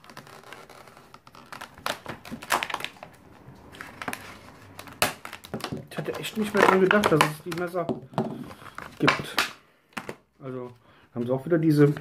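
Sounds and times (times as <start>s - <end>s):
plastic packaging crackling: 0.0s - 10.2s
sharp plastic cracks: 1.3s - 10.2s.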